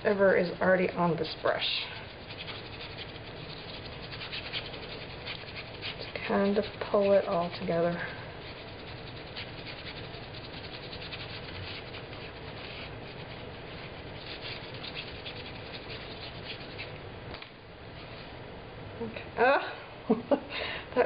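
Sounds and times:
low background hum: 0:00.0 - 0:21.0
paintbrush scrubbing on fabric: 0:01.2 - 0:17.0.

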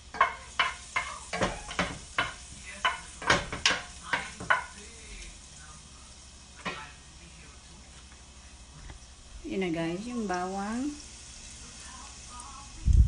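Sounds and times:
garlic sizzling in pan: 0:00.0 - 0:13.0
utensil knocking and scraping pan: 0:00.1 - 0:04.8.

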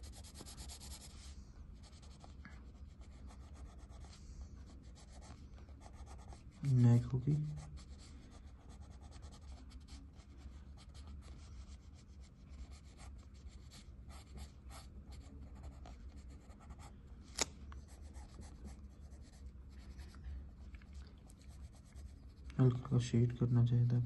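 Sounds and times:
pencil scratching on paper: 0:00.0 - 0:04.2, 0:04.8 - 0:06.8, 0:07.5 - 0:16.9, 0:17.9 - 0:20.1, 0:21.4 - 0:22.5.

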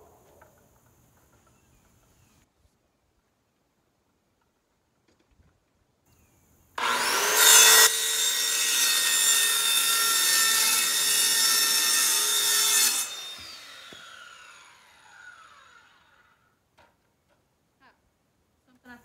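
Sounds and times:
saw motor winding down: 0:06.8 - 0:07.9, 0:12.8 - 0:16.4
circular saw cutting panel: 0:06.8 - 0:16.4.

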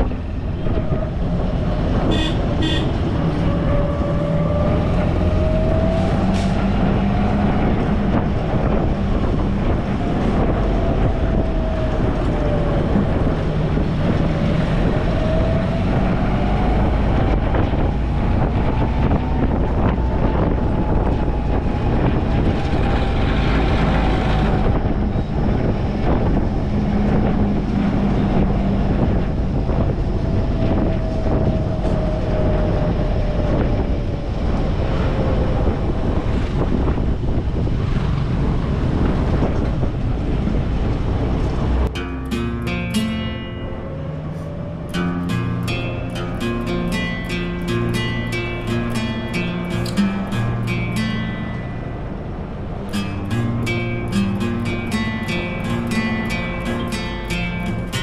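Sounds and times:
jeep engine driving: 0:00.0 - 0:58.0
wind and road noise: 0:00.0 - 0:58.0
short horn beeps: 0:02.1 - 0:03.0.

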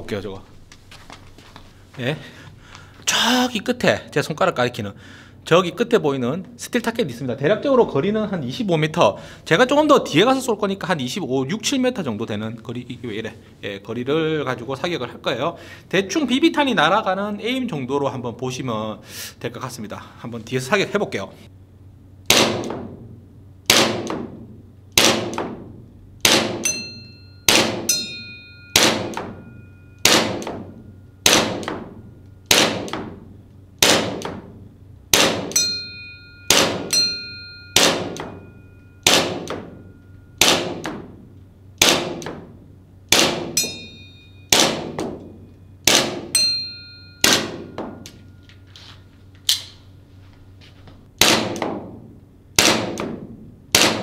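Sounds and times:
airsoft pistol shots: 0:22.3 - 0:22.9, 0:23.7 - 0:24.4, 0:25.0 - 0:26.7, 0:27.5 - 0:27.9, 0:28.8 - 0:29.4, 0:30.0 - 0:31.9, 0:32.5 - 0:33.2, 0:33.8 - 0:34.5, 0:35.1 - 0:35.6, 0:36.5 - 0:37.0, 0:37.8 - 0:38.4, 0:39.0 - 0:39.7, 0:40.4 - 0:41.1, 0:41.8 - 0:42.5, 0:43.1 - 0:43.6, 0:44.5 - 0:45.2, 0:45.8 - 0:46.3, 0:47.2 - 0:47.7, 0:51.2 - 0:51.9, 0:52.6 - 0:54.0
metallic ding of steel target: 0:26.6 - 0:31.0, 0:35.5 - 0:40.4, 0:43.6 - 0:44.6, 0:46.4 - 0:48.4.

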